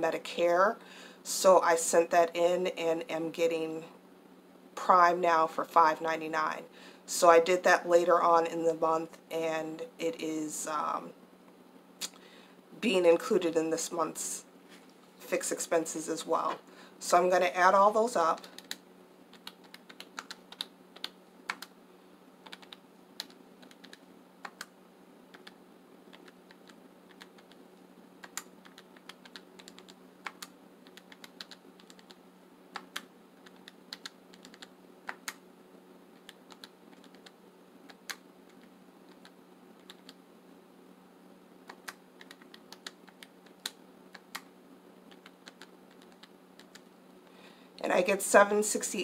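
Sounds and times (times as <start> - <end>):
calculator keys clicking: 28.2 - 32.2, 32.8 - 35.4.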